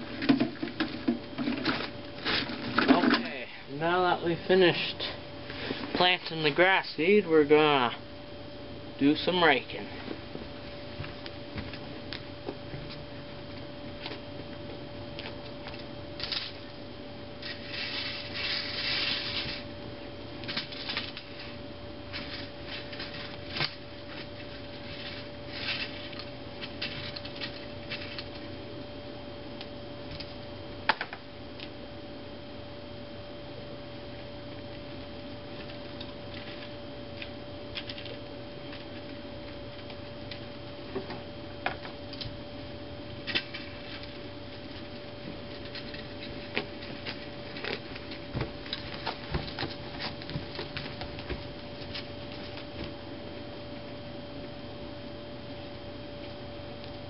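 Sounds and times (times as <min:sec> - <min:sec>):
steady high hum: 0:00.0 - 0:57.0
rake scratching over dirt: 0:17.4 - 0:19.7.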